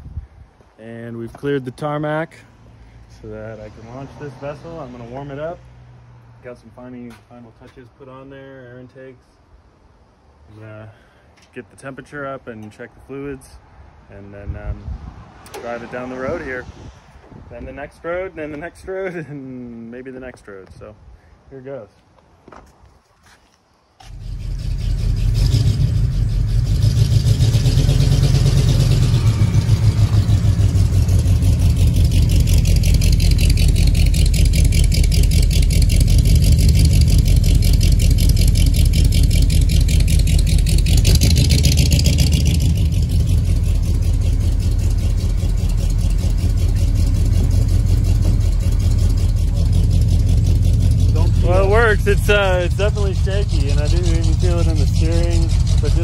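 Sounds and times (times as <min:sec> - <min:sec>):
bus engine starting and idling: 0:24.0 - 0:56.0.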